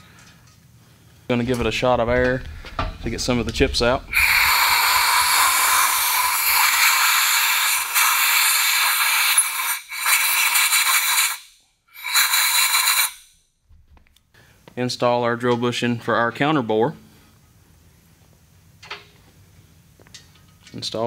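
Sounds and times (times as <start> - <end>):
compressed air blow gun hissing: 3.4 - 13.2.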